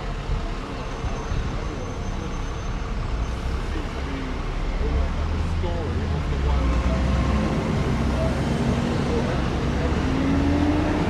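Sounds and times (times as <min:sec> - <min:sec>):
buses driving by: 0:00.0 - 0:11.0
faint passers-by voices: 0:00.0 - 0:11.0
road traffic rumble: 0:00.0 - 0:11.0.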